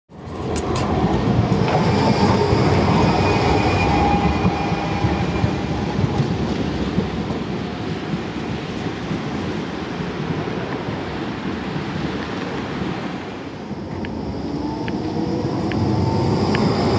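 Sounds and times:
tram wheels rumbling on rail: 0.1 - 16.9.

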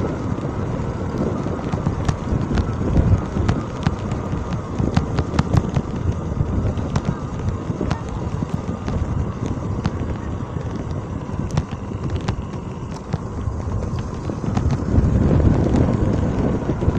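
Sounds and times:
motorcycle engine running: 0.0 - 16.9
wind buffeting microphone: 0.0 - 16.9
sharp ticks: 1.1 - 16.2.

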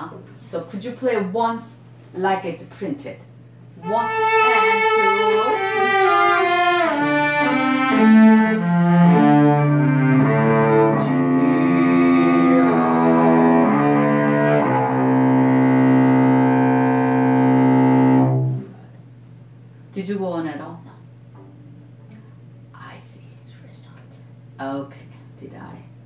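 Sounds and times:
bowed cello notes: 3.8 - 18.8.

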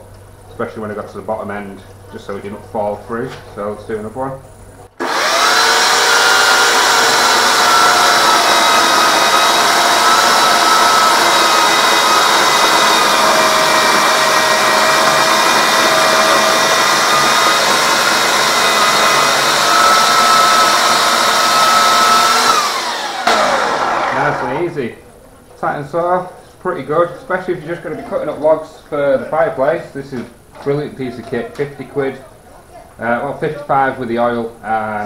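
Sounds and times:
electric chainsaw cutting log: 5.0 - 24.7.

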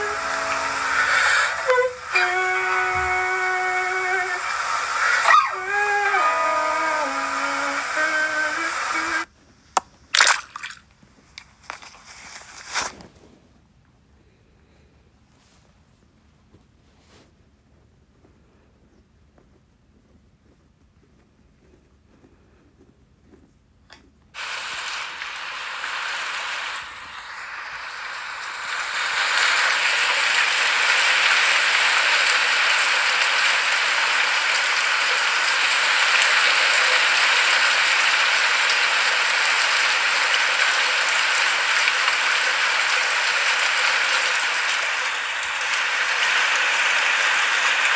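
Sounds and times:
rain falling: 0.0 - 9.3, 24.4 - 47.9.

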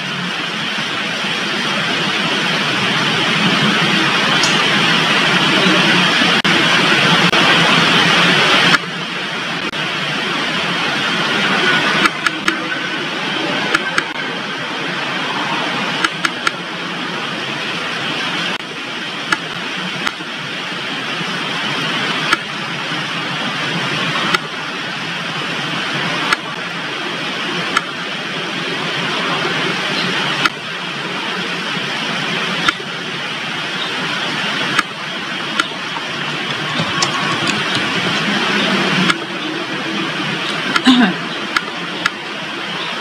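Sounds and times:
steady rushing background noise: 0.0 - 43.0.

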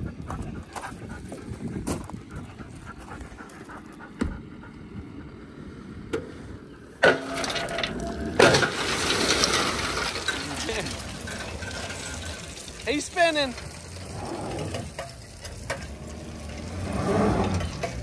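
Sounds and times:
crushed rock pouring out: 7.2 - 17.8.

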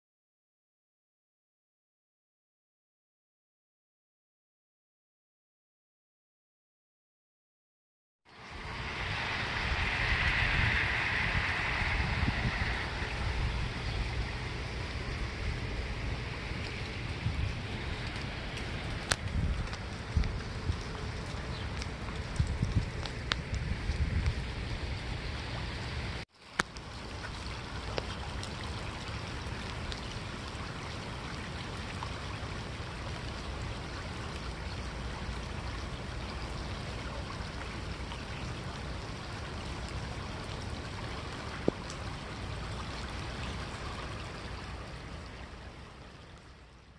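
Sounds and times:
rain: 8.3 - 46.9
running floodwater: 8.3 - 46.9.

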